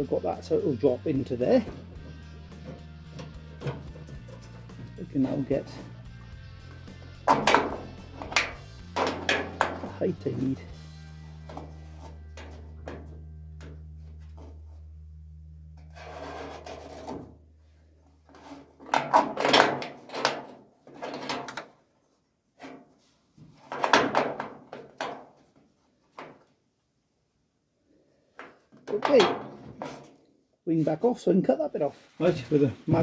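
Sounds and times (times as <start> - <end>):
low steady hum: 8.2 - 16.0
steel scraping against metal: 15.8 - 17.2.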